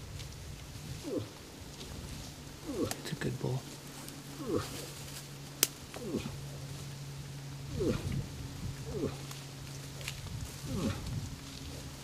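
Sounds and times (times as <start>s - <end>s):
steady low hum: 0.0s - 12.0s
moose grunting: 0.9s - 1.5s, 2.5s - 5.1s, 5.9s - 6.6s, 7.6s - 9.4s, 10.5s - 11.2s.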